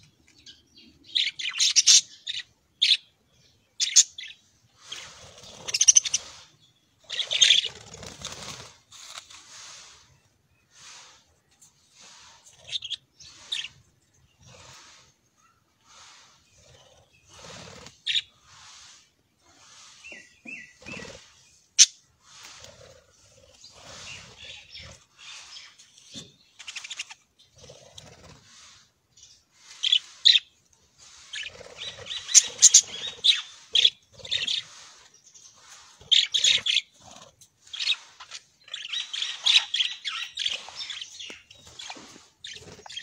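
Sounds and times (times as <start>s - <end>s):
budgerigars chattering and chirping: 0.4s - 8.3s, 11.9s - 15.1s, 15.8s - 22.6s, 23.5s - 27.6s, 28.4s - 43.0s
wings fluttering: 7.1s - 10.0s, 16.6s - 18.8s, 22.4s - 28.7s, 31.2s - 34.9s, 35.7s - 43.0s.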